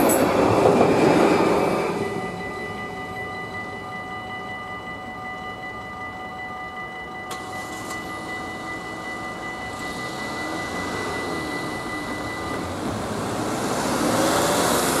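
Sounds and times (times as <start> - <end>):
level crossing bells ringing: 0.0 - 15.0
van driving: 7.3 - 15.0.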